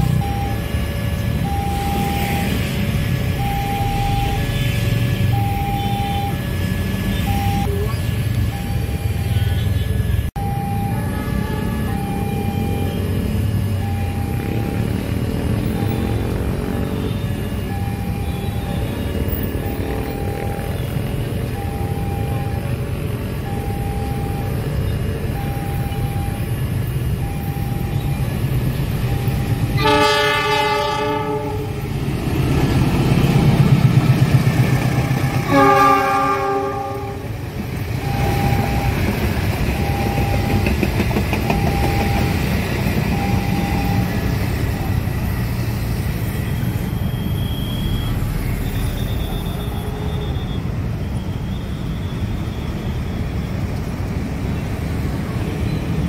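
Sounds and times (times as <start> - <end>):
locomotive engine rumble: 0.0 - 50.0
level crossing alarm beeping: 0.0 - 53.8
train horn blasts: 29.6 - 31.9, 35.2 - 37.4
train coaches clattering over rails: 37.6 - 45.0.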